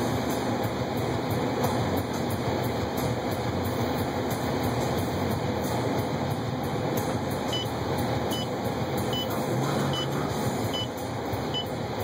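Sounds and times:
short high in-car beep: 0:09.1 - 0:09.3.

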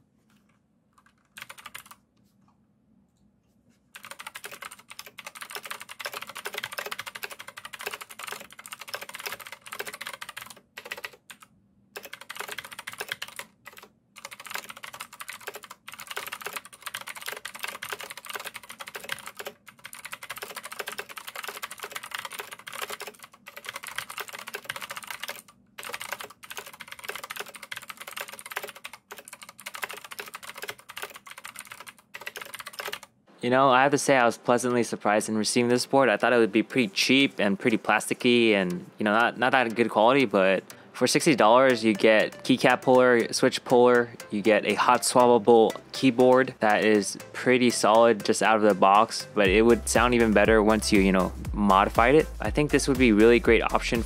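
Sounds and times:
mechanical keyboard typing: 0:01.0 - 0:02.0, 0:04.0 - 0:33.1.

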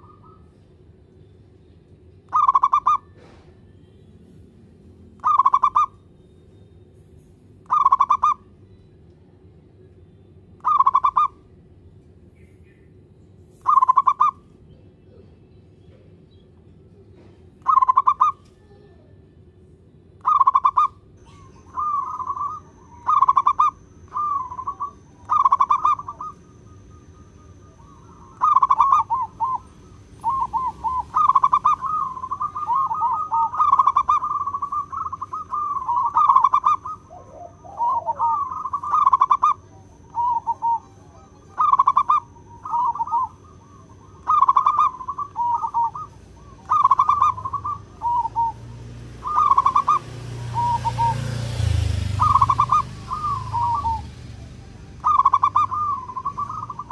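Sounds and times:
dove trilled cooing: 0:00.0 - 0:00.6, 0:02.3 - 0:03.5, 0:05.2 - 0:06.0, 0:07.6 - 0:08.5, 0:10.6 - 0:11.5, 0:13.6 - 0:15.4, 0:17.2 - 0:18.6, 0:20.2 - 0:56.9.

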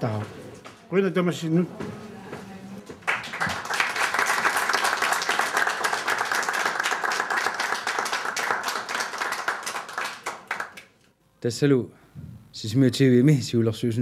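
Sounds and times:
crowd applauding: 0:03.0 - 0:11.0.

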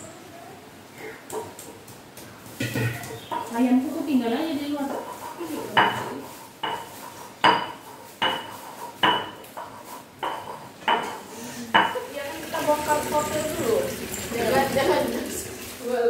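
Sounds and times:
metal cookware clanking: 0:02.6 - 0:03.5.

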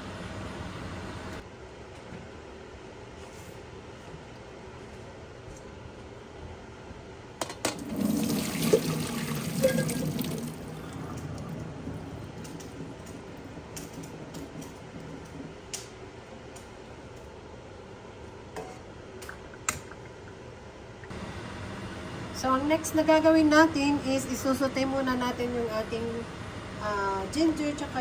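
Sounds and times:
water splashing into sink: 0:07.8 - 0:11.6
water trickling and dripping: 0:08.2 - 0:14.2.

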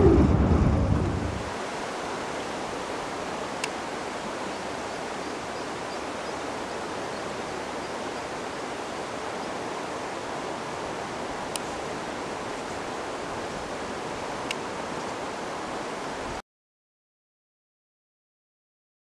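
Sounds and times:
low wind rumble: 0:00.0 - 0:05.2
river current rushing: 0:00.0 - 0:16.4
faint click: 0:14.4 - 0:14.6.

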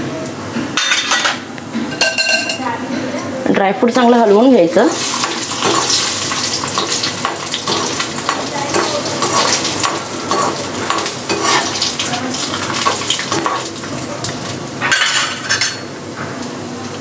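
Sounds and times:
nuts sizzling in hot fat: 0:03.9 - 0:14.9
spoon scraping and clinking on pan: 0:05.0 - 0:12.0.

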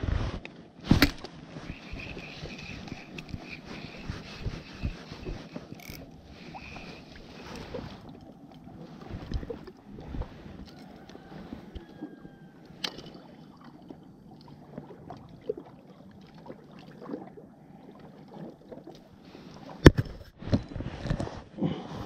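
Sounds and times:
fishing tackle clicks and rustles: 0:00.3 - 0:12.0, 0:12.6 - 0:13.3, 0:18.8 - 0:21.5
water lapping: 0:00.6 - 0:19.9.

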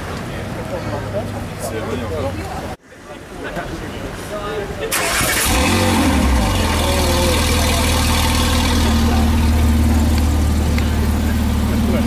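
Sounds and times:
car engine revving and idling: 0:05.1 - 0:12.0.

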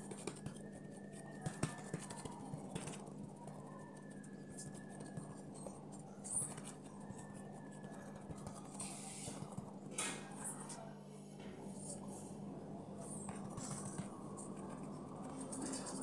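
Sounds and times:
hands patting dough: 0:00.0 - 0:09.7.

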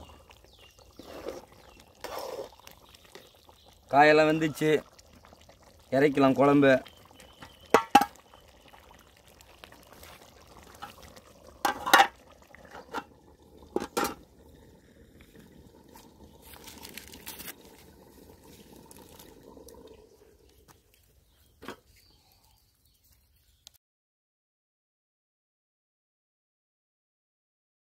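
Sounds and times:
curry bubbling in a pot: 0:00.0 - 0:22.6
metal lid and ladle clanks: 0:07.7 - 0:08.2, 0:11.6 - 0:13.1, 0:13.7 - 0:14.2.

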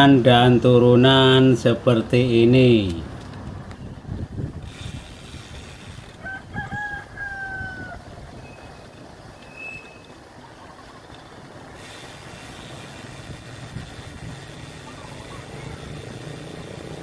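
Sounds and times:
rooster crowing: 0:06.1 - 0:08.1.

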